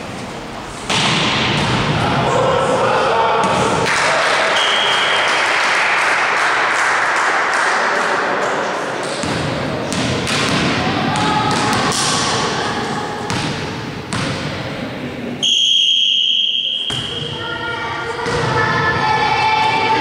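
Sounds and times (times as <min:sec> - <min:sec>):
volleyball bouncing on gym floor: 0:09.0 - 0:12.5, 0:13.3 - 0:14.7, 0:16.8 - 0:17.4, 0:18.2 - 0:18.7.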